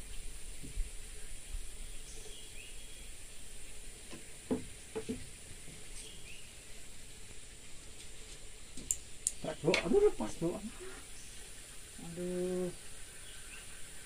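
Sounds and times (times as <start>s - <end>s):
soft knocks: 4.1s - 5.3s.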